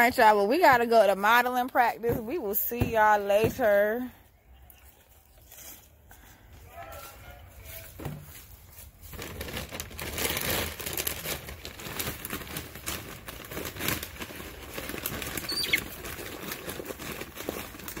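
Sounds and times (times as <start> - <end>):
chickens pecking at feed: 14.0 - 18.0
chicken call: 15.5 - 15.8.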